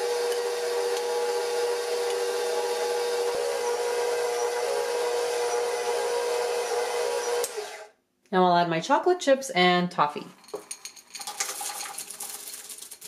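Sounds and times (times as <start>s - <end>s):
stand mixer motor whining: 0.0s - 7.9s.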